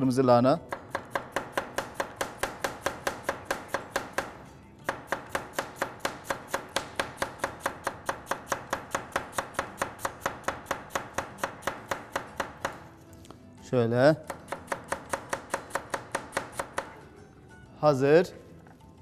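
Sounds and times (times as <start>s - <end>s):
knife chopping on cutting board: 0.7s - 12.9s, 14.2s - 17.0s.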